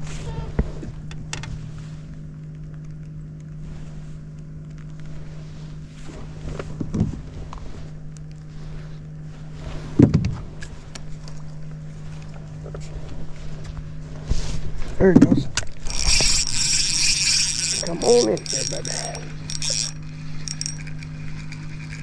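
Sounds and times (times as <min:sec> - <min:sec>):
bumps and knocks against boat: 0:09.9 - 0:10.5, 0:15.0 - 0:15.7
small electric motor humming: 0:15.7 - 0:22.0.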